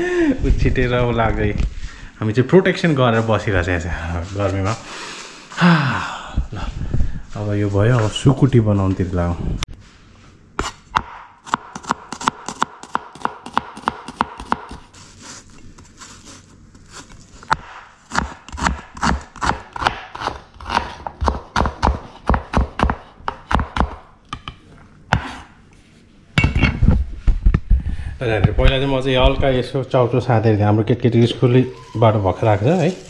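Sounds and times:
knife chopping on wooden board: 0:10.6 - 0:14.8, 0:17.5 - 0:24.5.

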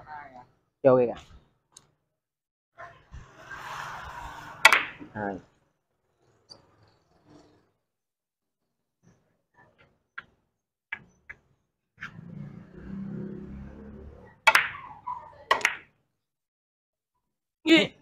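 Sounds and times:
billiard balls clicking: 0:04.7 - 0:05.0, 0:14.5 - 0:14.9, 0:15.5 - 0:15.9
cue tip striking ball: 0:04.7 - 0:05.1, 0:14.5 - 0:14.9.

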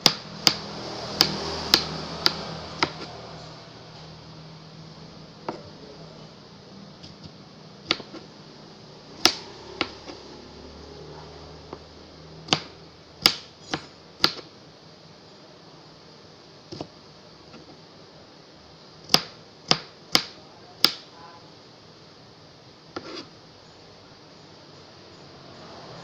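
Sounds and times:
knife chopping on cutting board: 0:00.0 - 0:03.1, 0:07.0 - 0:08.3, 0:09.2 - 0:10.2, 0:12.5 - 0:14.5, 0:16.7 - 0:16.9, 0:19.1 - 0:21.0, 0:23.0 - 0:23.3.

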